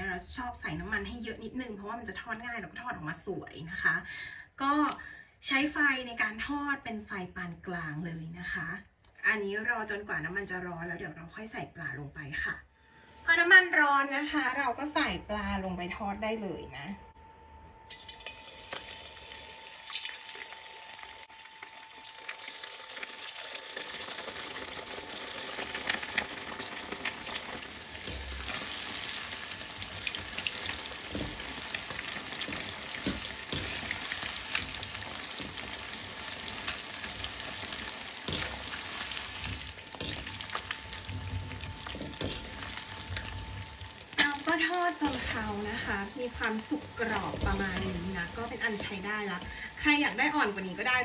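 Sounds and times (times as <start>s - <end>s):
fish deep-frying in oil: 17.8s - 51.0s.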